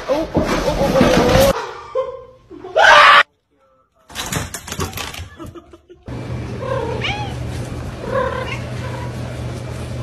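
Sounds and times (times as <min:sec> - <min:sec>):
pet door flap clattering: 0:04.1 - 0:05.5.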